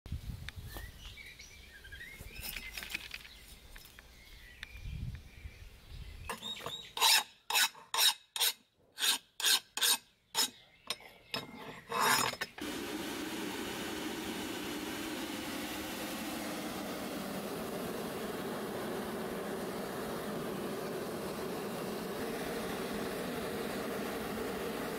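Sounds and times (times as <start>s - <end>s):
file rasping on metal: 7.0s - 10.6s, 11.8s - 12.4s
forge roaring: 12.6s - 24.9s.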